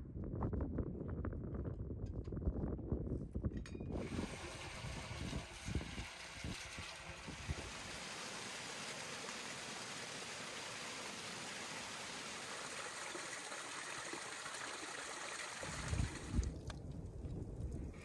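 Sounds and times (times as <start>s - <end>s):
small waterfall rushing: 4.0s - 16.4s.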